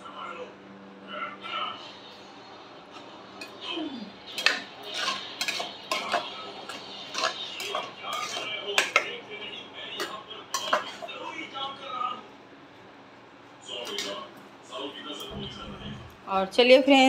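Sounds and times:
metal ladle scraping a pot: 4.3 - 9.1, 10.0 - 11.2.

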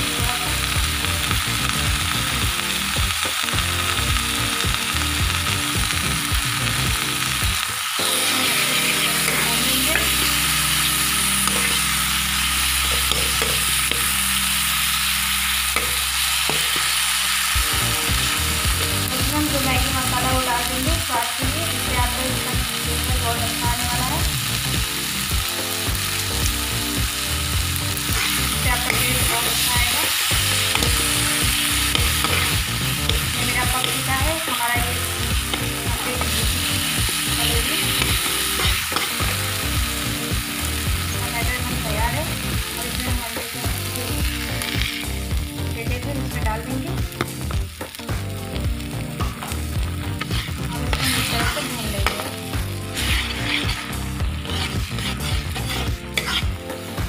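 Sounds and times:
egg frying: 0.0 - 57.0
masala sizzling in a frying pan: 0.0 - 57.0
metal spatula scraping a pan: 30.6 - 34.1, 37.6 - 39.2, 50.1 - 56.8.

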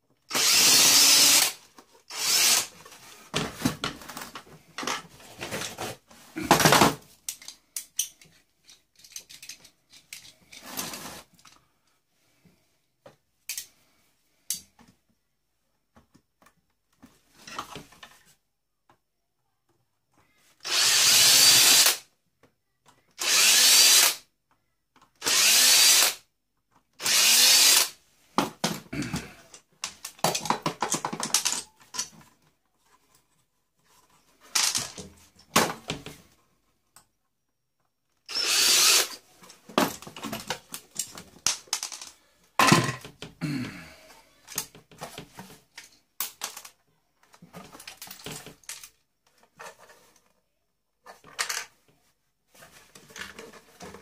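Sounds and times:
power drill whirring: 0.3 - 2.7, 20.6 - 22.0, 23.2 - 24.2, 25.2 - 26.2, 27.0 - 28.0, 38.3 - 39.2
parts clicking and rattling: 6.6 - 10.7, 29.5 - 32.4, 38.5 - 43.3, 44.5 - 50.2.

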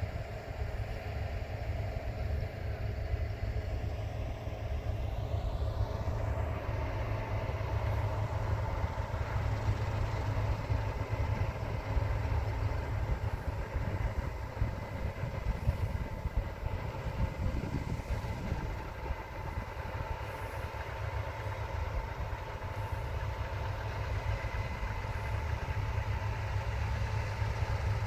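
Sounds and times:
distant farm machinery drone: 0.0 - 28.0
wind buffeting microphone: 9.7 - 20.5.

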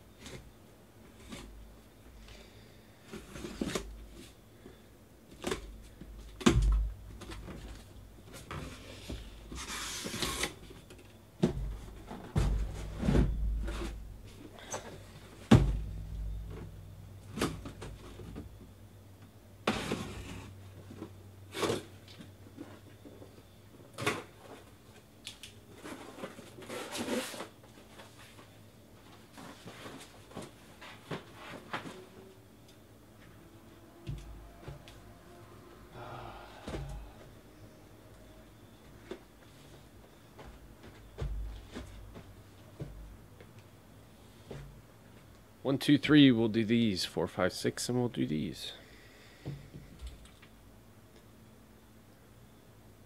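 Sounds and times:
boxes knocking on a table: 11.4 - 13.9, 15.4 - 16.7.

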